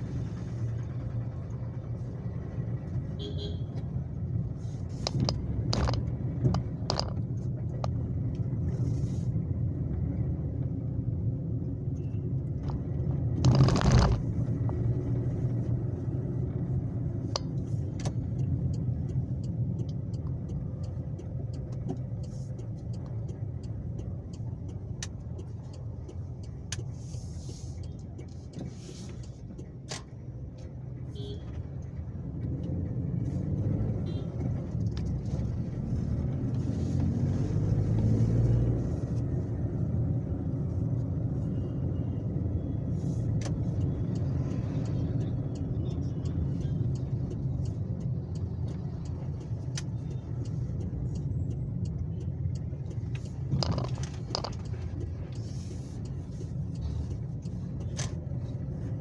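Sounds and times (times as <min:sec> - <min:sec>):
car engine and tyres rumbling: 0:00.0 - 0:59.0.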